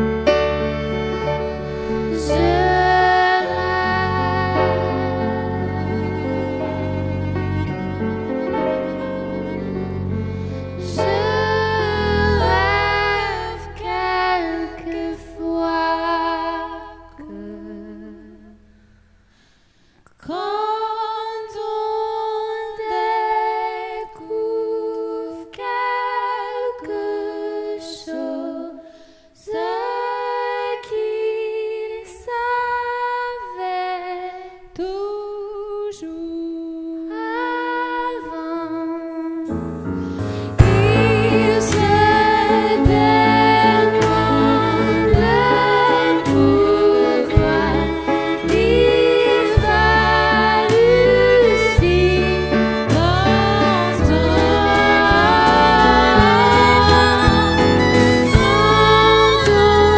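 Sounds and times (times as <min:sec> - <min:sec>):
woman singing: 0:02.1 - 0:07.0, 0:10.8 - 0:18.6, 0:20.2 - 0:39.6, 0:40.4 - 0:59.9
live folk band playing: 0:40.2 - 0:59.9.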